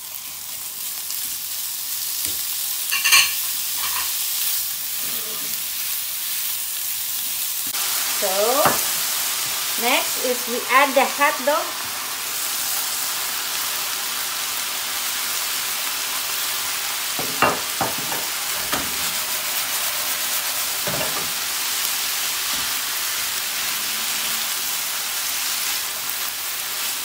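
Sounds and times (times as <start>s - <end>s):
sausage sizzling in a pan: 0.0s - 27.0s
spatula knocking and scraping pan: 8.6s - 9.0s, 17.2s - 19.2s, 20.8s - 21.4s.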